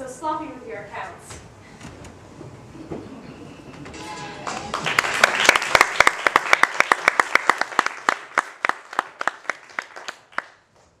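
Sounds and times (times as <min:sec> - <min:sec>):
audience applauding: 0:04.2 - 0:10.7.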